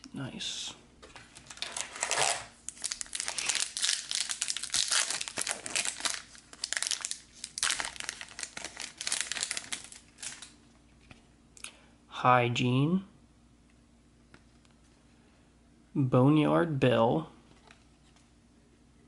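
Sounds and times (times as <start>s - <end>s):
plastic wrapper crinkling and tearing: 1.2s - 10.6s.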